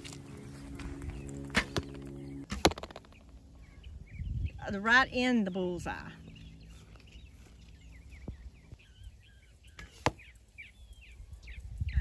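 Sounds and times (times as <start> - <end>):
birds chirping: 0.0 - 12.0
arrow hitting target: 1.5 - 3.3.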